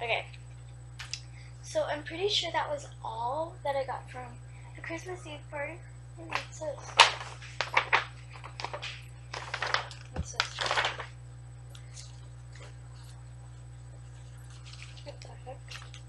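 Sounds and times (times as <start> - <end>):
low steady hum: 0.0 - 16.0
gift bag and paper rustling: 6.3 - 11.1, 11.9 - 16.0.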